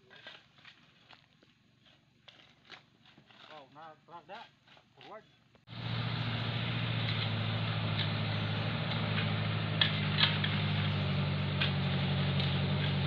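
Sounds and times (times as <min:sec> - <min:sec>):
shovels scraping soil: 0:00.0 - 0:05.4, 0:07.0 - 0:13.0
engine idling: 0:05.7 - 0:13.0.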